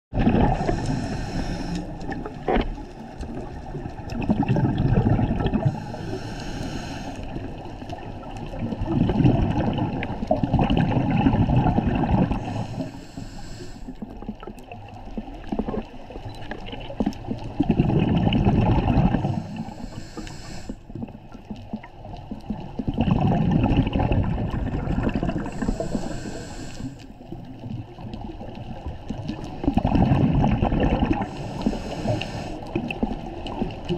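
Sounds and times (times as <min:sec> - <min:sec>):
bubbling exhale underwater: 0:00.1 - 0:13.0, 0:14.0 - 0:33.9
regulator hissing inhale: 0:00.5 - 0:02.3, 0:05.6 - 0:07.6, 0:12.3 - 0:14.1, 0:19.2 - 0:21.0, 0:25.3 - 0:27.3, 0:31.2 - 0:32.8.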